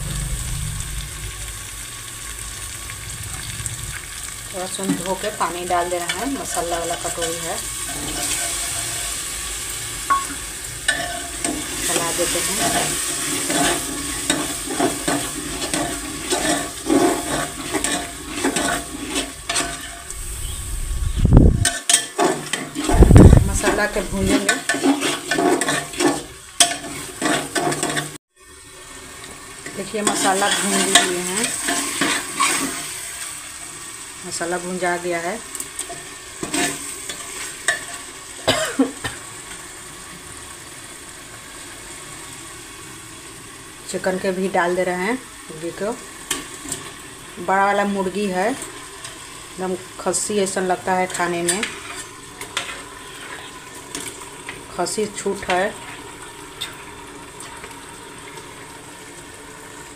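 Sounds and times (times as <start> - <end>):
heavy low thud: 0.0 - 1.6
steady sizzle: 0.0 - 59.9
spatula scraping and stirring paste: 24.3 - 26.3
person coughing: 38.5 - 39.2.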